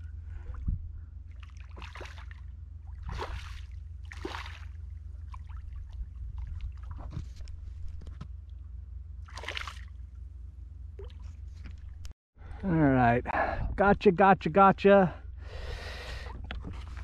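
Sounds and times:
steady low rumble: 0.0 - 17.0
fish splashing at water surface: 1.3 - 6.9, 9.2 - 10.0.

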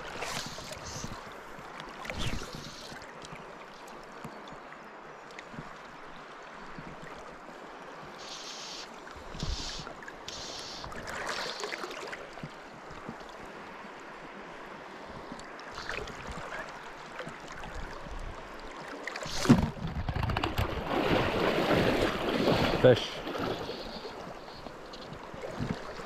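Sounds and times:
river water rushing: 20.6 - 26.0.

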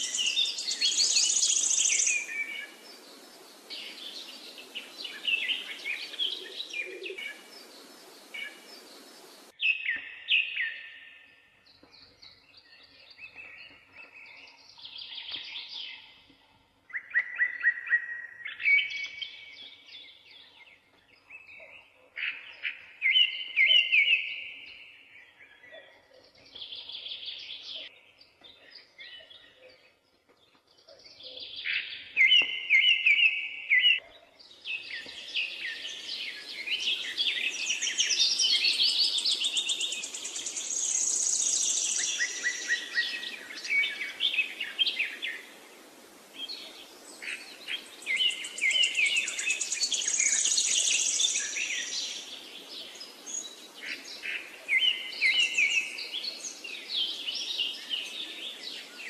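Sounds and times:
birds chirping and trilling: 0.0 - 59.0
steady hiss: 1.0 - 9.5.

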